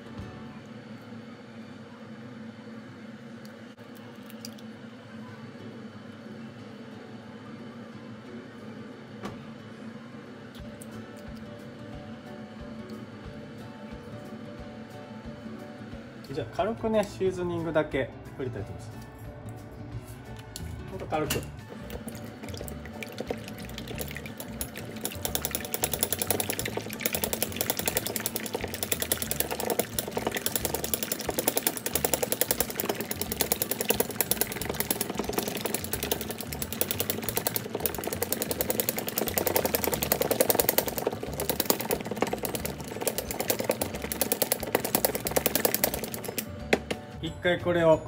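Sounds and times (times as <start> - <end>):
chopsticks beating egg whites: 21.7 - 46.9.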